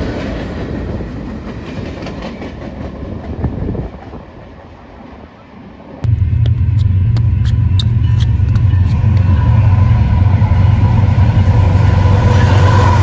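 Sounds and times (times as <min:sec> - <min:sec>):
diesel locomotives rumbling: 0:06.0 - 0:13.0.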